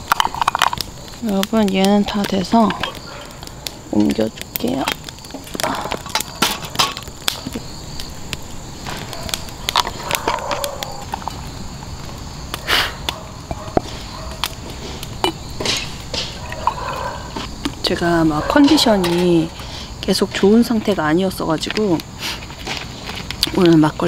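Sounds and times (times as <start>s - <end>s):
faint insect chirring: 0.0s - 24.0s.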